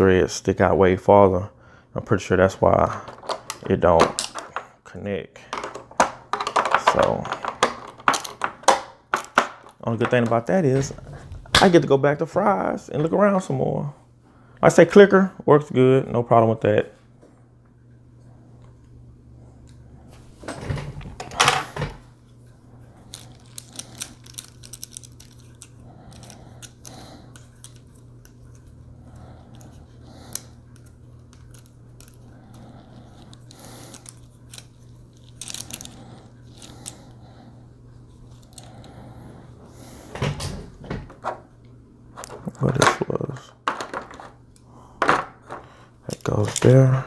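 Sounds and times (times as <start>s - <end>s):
faint steady hum: 0.0s - 47.0s
plastic parts clicking and rattling: 2.8s - 4.7s, 5.4s - 11.0s, 23.0s - 28.7s, 29.5s - 37.1s, 42.3s - 44.4s
plastic packaging crinkling: 23.0s - 26.9s.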